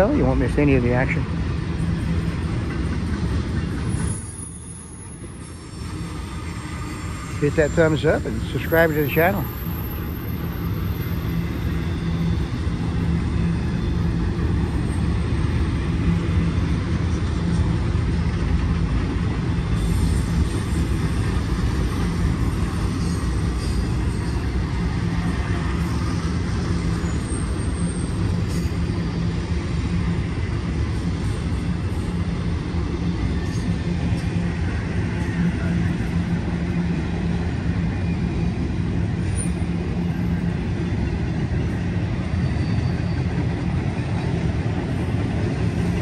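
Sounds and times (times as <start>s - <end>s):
freight train rumbling past: 0.0s - 46.0s.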